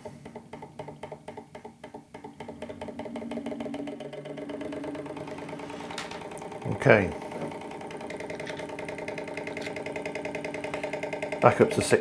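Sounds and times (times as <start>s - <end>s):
stirling engine running: 2.5s - 12.0s.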